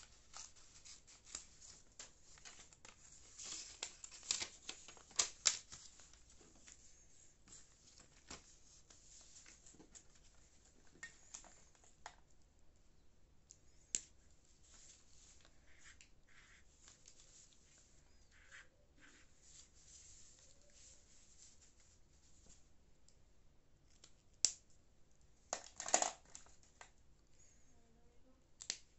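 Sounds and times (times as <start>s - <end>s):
paper rustling: 0.0s - 12.0s, 14.5s - 22.6s.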